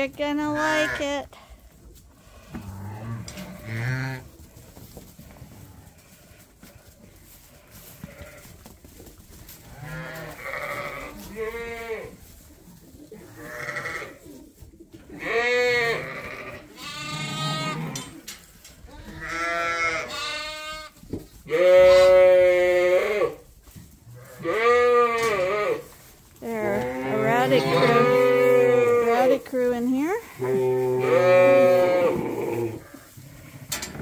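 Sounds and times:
sheep and lambs bleating: 0:00.4 - 0:01.2, 0:02.9 - 0:04.2, 0:08.0 - 0:08.5, 0:09.7 - 0:12.2, 0:13.3 - 0:14.2, 0:15.1 - 0:18.1, 0:18.9 - 0:23.4, 0:24.1 - 0:25.8, 0:26.4 - 0:29.4, 0:30.2 - 0:33.0.

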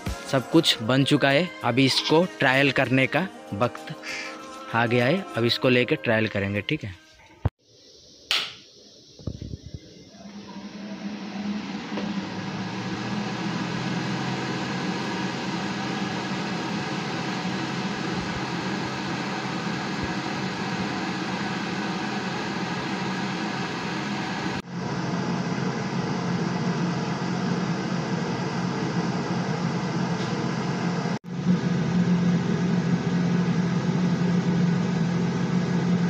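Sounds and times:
vacuum motor humming: 0:09.2 - 0:36.0.

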